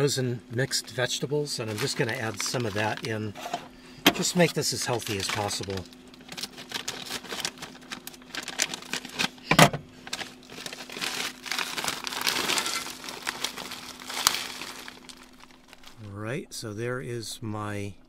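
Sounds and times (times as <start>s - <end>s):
faint steady hum: 0.0s - 18.0s
plastic bag crinkling: 1.6s - 3.3s, 4.2s - 16.0s.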